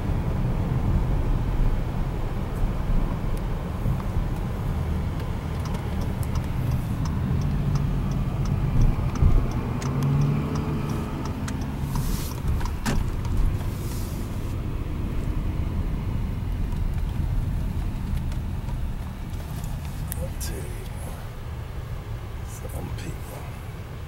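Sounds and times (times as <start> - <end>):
car road and engine rumble: 0.0 - 24.0
light ticking: 5.1 - 11.8.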